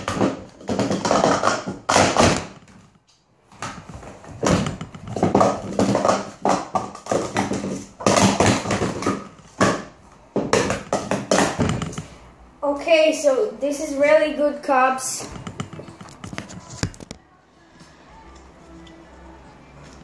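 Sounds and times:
plastic cups clattering: 0.0 - 3.0, 3.6 - 12.2.

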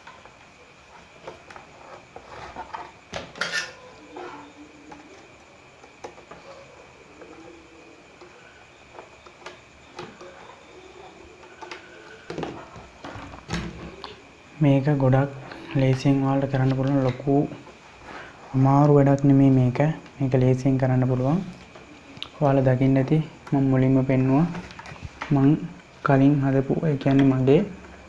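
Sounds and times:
faint steady high tone: 2.6 - 27.9.

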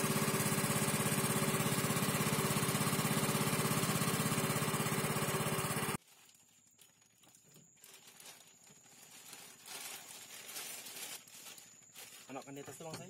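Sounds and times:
boat engine running: 0.0 - 6.0
rustling and handling noises: 6.0 - 13.0.

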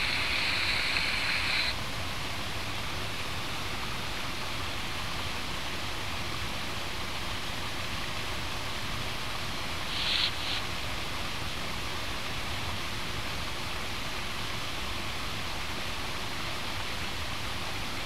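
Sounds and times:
high steady buzz: 0.0 - 1.8, 9.8 - 10.8
water rushing down waterfall: 0.0 - 18.0.

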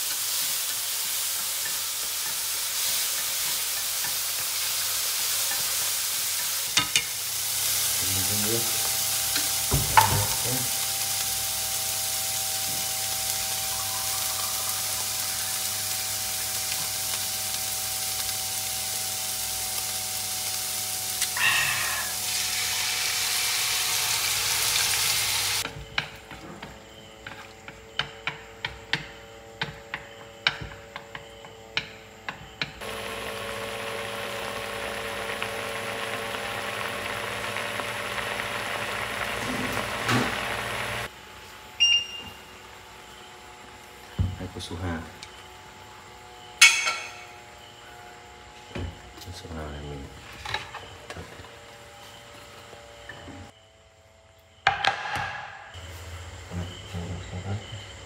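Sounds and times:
clams sizzling in a pan: 0.0 - 25.6, 32.8 - 41.7.

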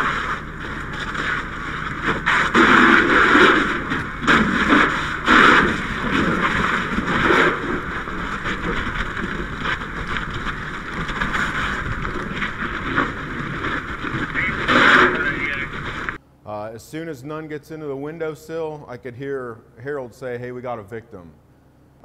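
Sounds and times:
fire hissing and rushing: 0.0 - 16.2.

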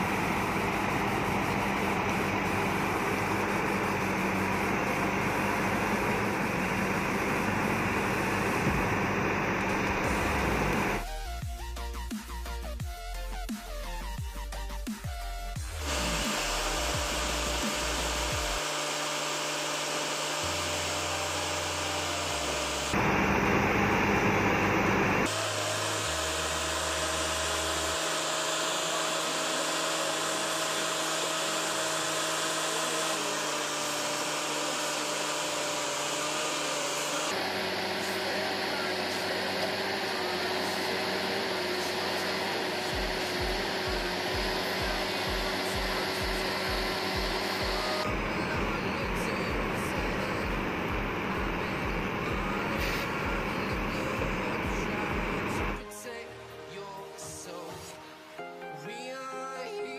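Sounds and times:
truck engine and hydraulic pump whirring: 0.0 - 11.4, 14.9 - 55.8
music with a beat: 10.1 - 18.6, 43.0 - 58.0.

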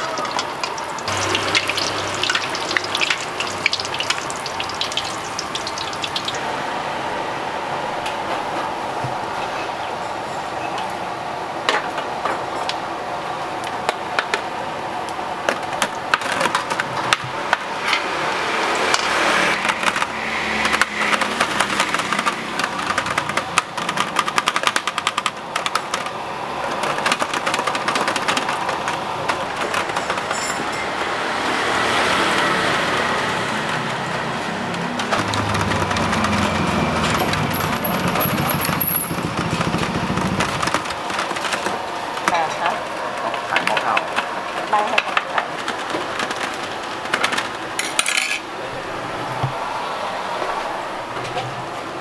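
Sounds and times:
motorbike passing: 0.0 - 8.4, 17.7 - 23.5, 30.6 - 42.0, 48.6 - 52.0
utensils clicking on metal tray: 18.9 - 26.1.

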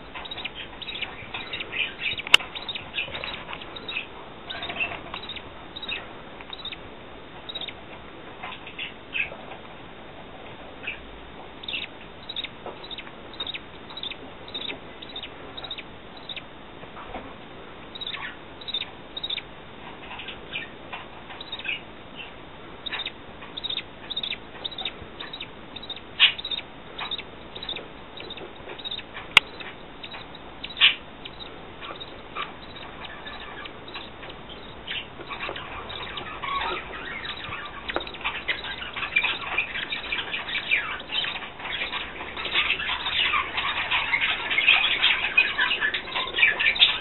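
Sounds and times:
chicks cheeping: 0.0 - 9.4, 10.7 - 17.3, 17.9 - 47.0.

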